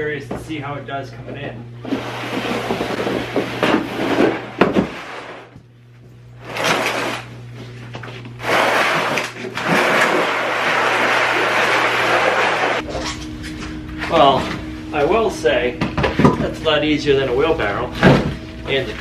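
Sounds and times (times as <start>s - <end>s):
sled scraping on concrete: 8.4s - 12.9s.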